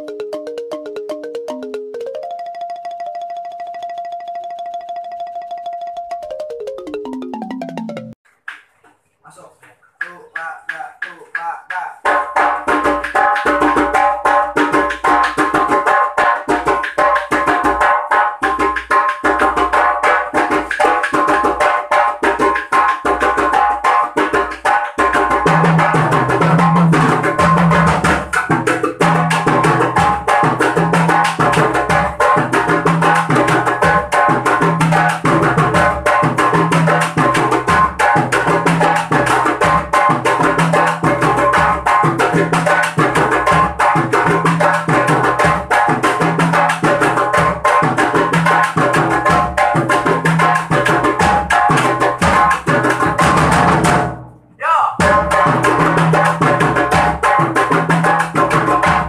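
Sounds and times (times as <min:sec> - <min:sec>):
toms played with sticks: 0:00.0 - 0:54.2, 0:55.0 - 0:59.0
djembes struck by hand: 0:10.0 - 0:54.2, 0:55.0 - 0:59.0
deeper repeating drum pattern: 0:55.0 - 0:57.4.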